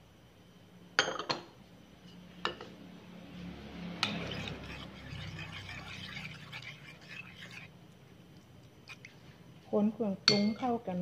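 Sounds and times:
spoon stirring and scraping bowl: 4.0s - 9.3s
spoon clinking on ceramic bowl: 10.2s - 10.7s.

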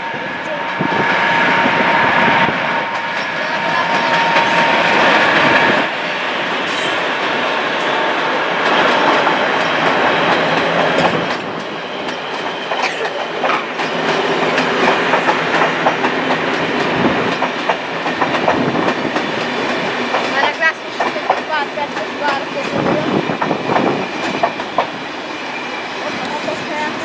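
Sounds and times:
train wheels clattering over rail joints: 8.6s - 25.1s.

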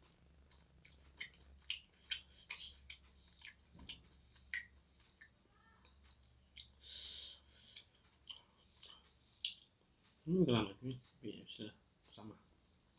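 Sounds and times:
person chewing food: 0.5s - 9.8s.

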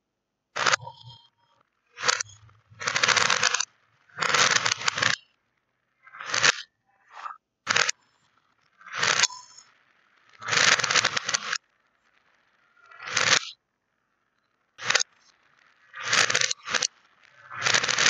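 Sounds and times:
plastic beads rattling in plastic cups: 2.8s - 3.6s, 4.2s - 5.2s, 10.4s - 11.6s, 16.0s - 16.9s, 17.5s - 18.0s.

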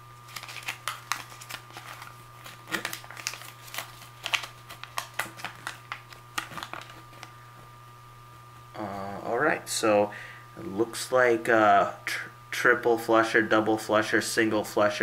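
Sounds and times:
paper crinkling: 0.2s - 7.4s.

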